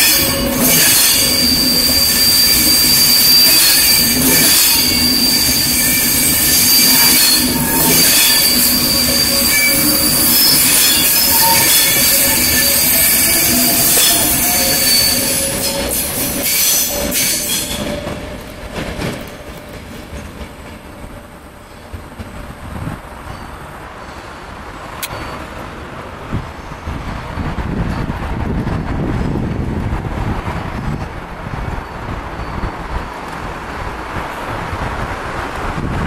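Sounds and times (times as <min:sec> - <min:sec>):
wheel squeal: 0:00.0 - 0:18.1
electric train rolling over points: 0:00.0 - 0:23.5
wind rumble on microphone: 0:22.0 - 0:23.4, 0:26.2 - 0:36.0.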